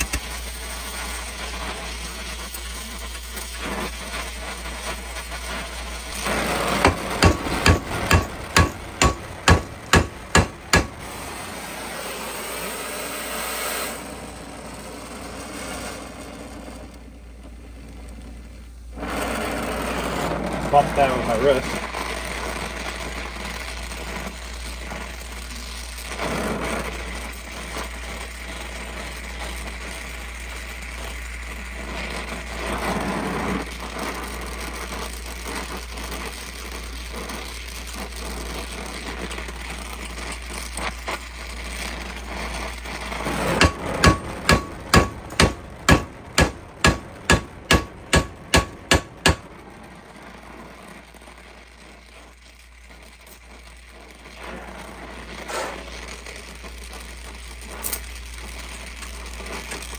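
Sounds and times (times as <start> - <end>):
gas torch flame hissing: 0.0 - 59.9
hammer blows on metal: 6.8 - 11.1, 43.5 - 49.5.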